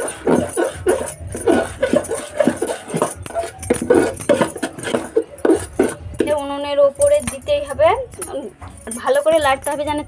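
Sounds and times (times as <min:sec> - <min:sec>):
metal spoon scraping a pot: 0:00.0 - 0:06.3.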